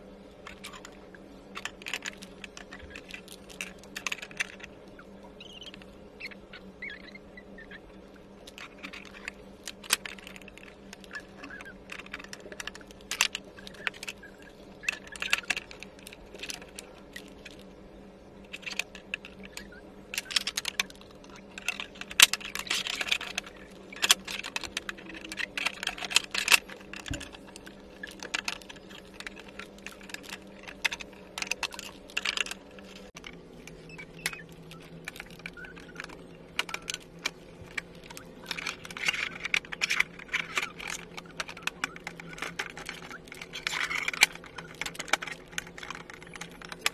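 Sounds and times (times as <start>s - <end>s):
steady low hum: 0.0s - 46.9s
plastic panels clicking and tapping: 18.5s - 46.9s.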